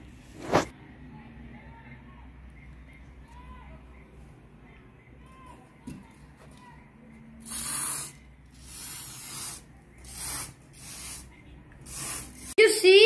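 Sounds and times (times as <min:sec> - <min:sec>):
aerosol can spraying: 0:07.4 - 0:12.6.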